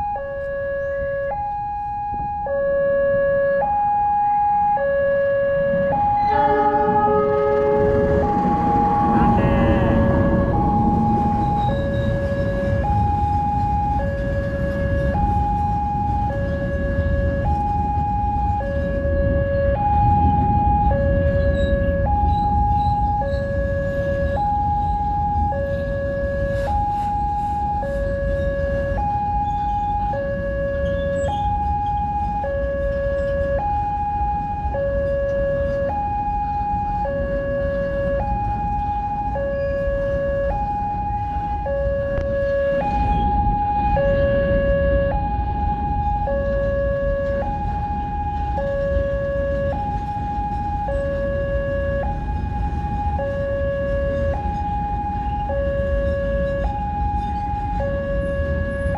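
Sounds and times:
two-tone crossing alarm: 0.0 - 58.9
freight train rumbling past: 5.5 - 30.4.

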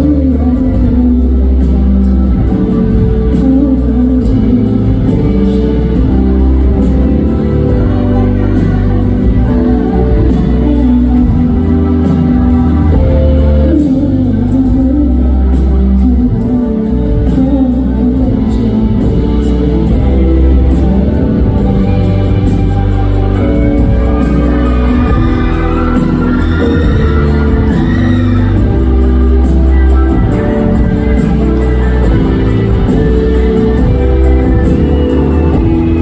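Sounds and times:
song with beat and bass: 0.0 - 36.0.

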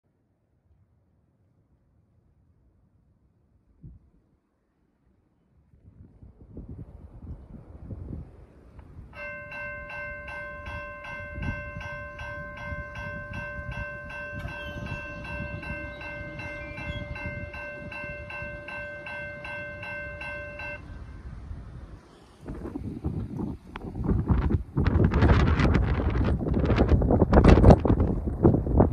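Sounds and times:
wind rumble on microphone: 3.7 - 4.3, 5.5 - 28.9
crossing warning bell ringing: 9.1 - 21.6.

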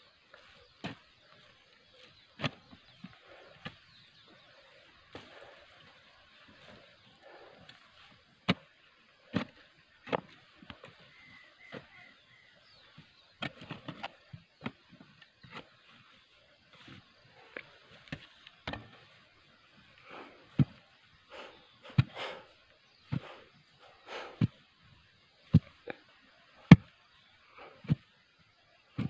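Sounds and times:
digging tool scraping clay soil: 0.3 - 19.2, 21.6 - 23.6.

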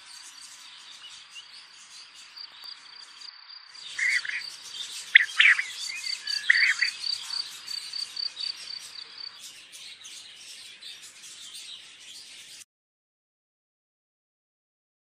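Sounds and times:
birds chirping: 0.0 - 12.6
loud bird calls: 0.0 - 12.6
cricket trill: 2.3 - 9.3.

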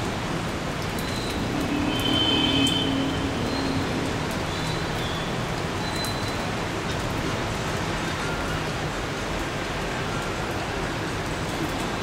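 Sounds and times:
heavy rain: 0.0 - 12.0
light drip ticks: 0.7 - 2.9, 3.5 - 8.2.

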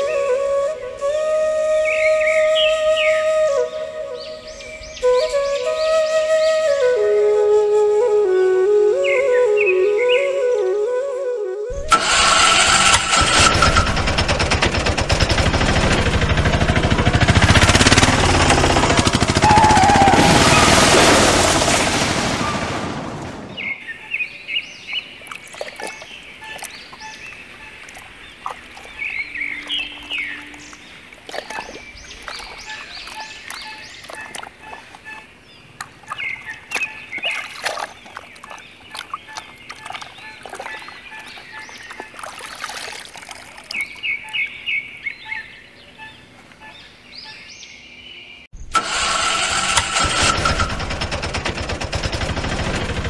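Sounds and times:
birds chirping: 0.0 - 7.4, 8.9 - 10.9, 23.4 - 48.7
loud noise: 15.0 - 23.5
water splashing in puddle: 24.9 - 44.4.

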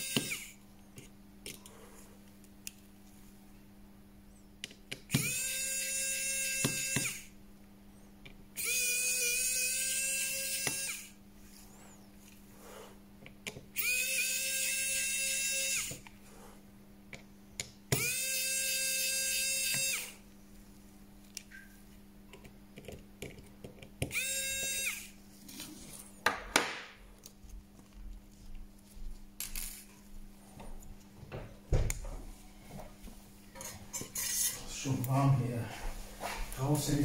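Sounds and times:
small electric tool motor whirring: 0.0 - 0.6, 5.1 - 7.3, 8.6 - 11.2, 13.8 - 16.0, 17.9 - 20.2, 24.0 - 25.2
steady low hum: 0.0 - 26.3.

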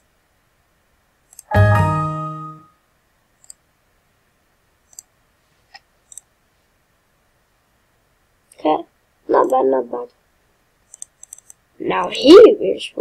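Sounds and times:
soft mouse clicks: 1.3 - 1.5, 3.4 - 3.6, 4.9 - 5.1, 5.7 - 6.3, 10.9 - 11.6
computer alert chime: 1.5 - 2.7.

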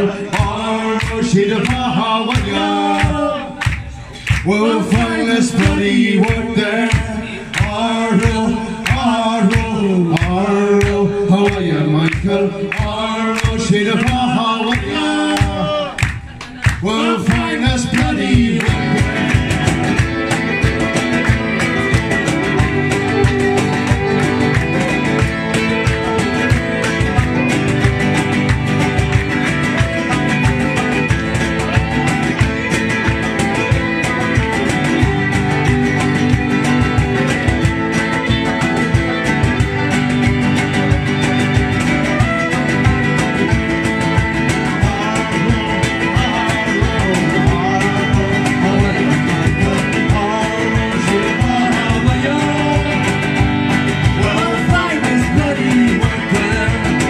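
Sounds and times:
acoustic guitars strummed: 0.0 - 57.0
banjo: 0.0 - 57.0
fiddle: 15.3 - 57.0
flute: 29.8 - 45.1.

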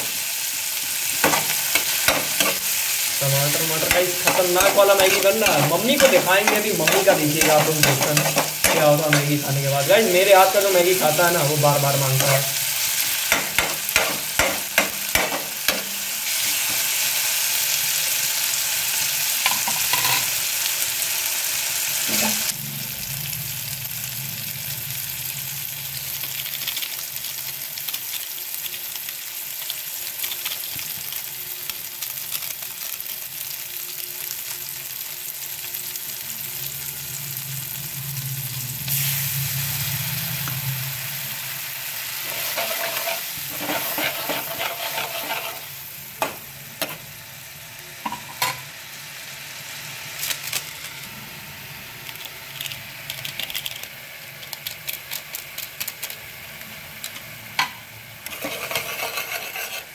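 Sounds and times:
onions sizzling in hot oil: 0.0 - 59.9
spatula scraping pan: 1.2 - 10.0, 42.2 - 45.8, 58.3 - 59.9.

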